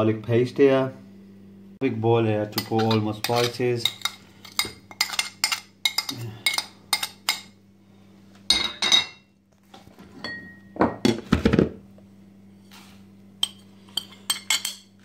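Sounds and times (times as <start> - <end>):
steady low hum: 0.0 - 15.0
spoon scraping ceramic plate: 2.6 - 7.5, 13.4 - 14.9.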